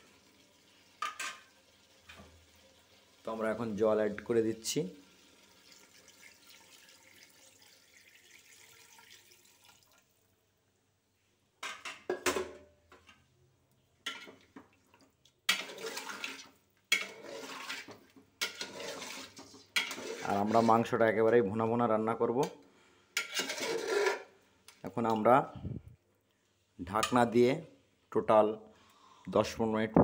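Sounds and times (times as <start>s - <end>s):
water splashing into pot: 4.2s - 10.2s, 14.0s - 20.7s
spatula scraping pot: 15.5s - 21.0s, 23.1s - 24.4s.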